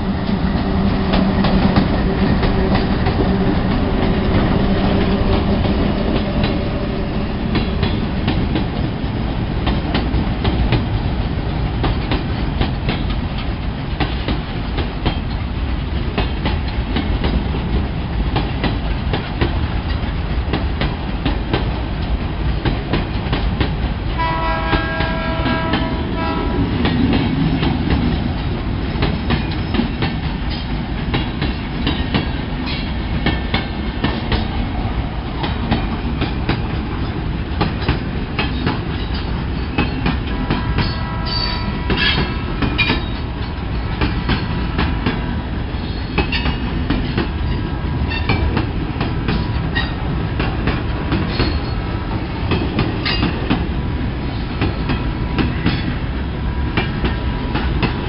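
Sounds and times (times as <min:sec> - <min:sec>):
diesel locomotives droning: 0:00.0 - 0:58.0
train wheels clacking over rail joints: 0:00.1 - 0:34.6, 0:35.3 - 0:56.0
train horn: 0:24.2 - 0:26.9, 0:40.2 - 0:42.5.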